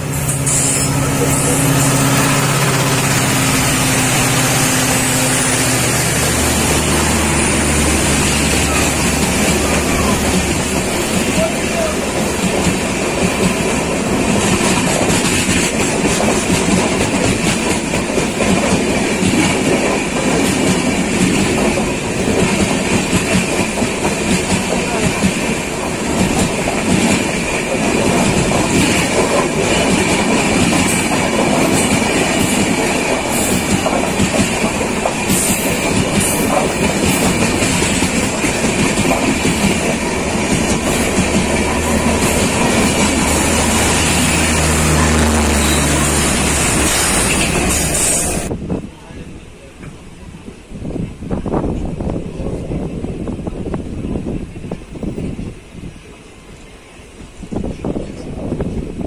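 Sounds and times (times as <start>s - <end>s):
train wheels on rails: 0.0s - 59.0s.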